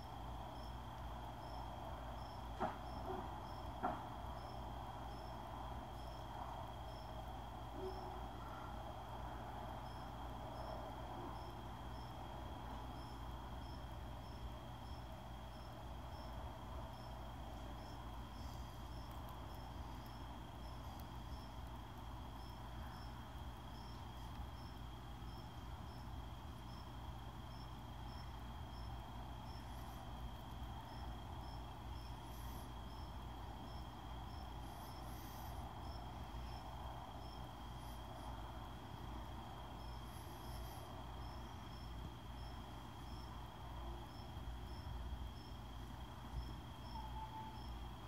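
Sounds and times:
cricket chirping: 0.0 - 48.0
high insect whine: 0.0 - 48.0
insect buzzes: 9.8 - 48.0.

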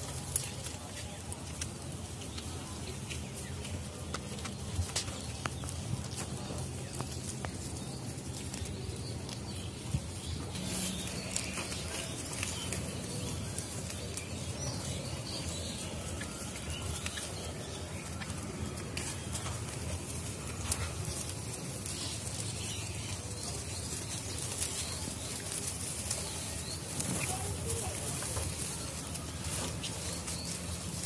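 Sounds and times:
outdoor background noise: 0.0 - 31.0.

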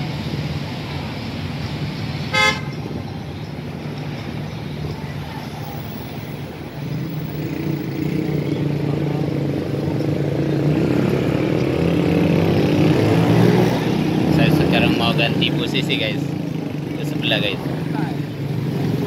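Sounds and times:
cars and motorbikes passing: 0.0 - 19.0
short horn beep: 2.3 - 2.7
vehicle engine pulling away: 5.7 - 19.0.

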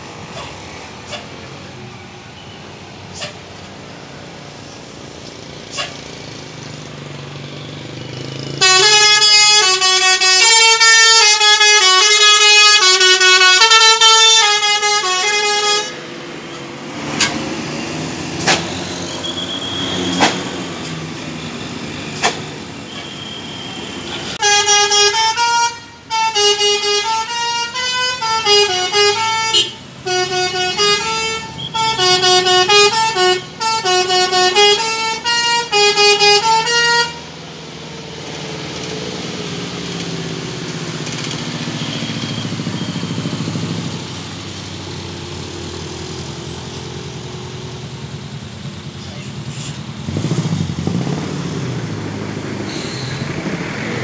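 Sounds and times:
bus horn playing a melody: 8.5 - 16.1, 24.2 - 37.3.

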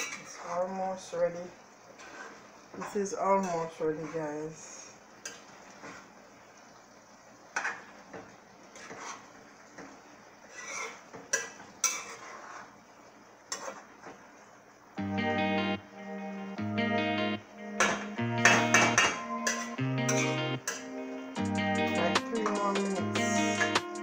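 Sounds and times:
metal spoon scraping a pot: 2.0 - 2.4, 8.7 - 9.3, 10.5 - 12.8, 13.5 - 13.9, 19.4 - 20.8
guitar music: 15.0 - 24.0.

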